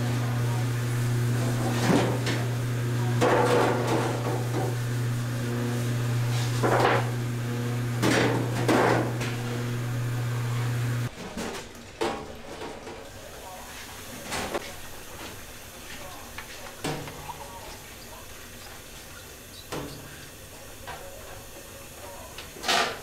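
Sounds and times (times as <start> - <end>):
electric machine hum: 0.0 - 11.1
metal knocks against steel tubs: 3.2 - 4.8, 8.0 - 9.4.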